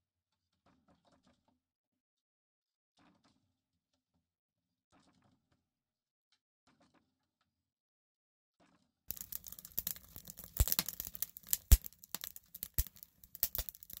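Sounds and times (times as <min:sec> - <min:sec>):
logs crackling in wood stove: 0:09.1 - 0:14.0.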